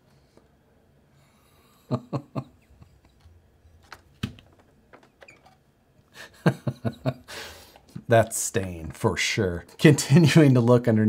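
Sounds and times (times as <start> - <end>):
breath: 1.1 - 1.8, 7.3 - 7.9
man laughing: 1.8 - 3.2, 6.2 - 7.4.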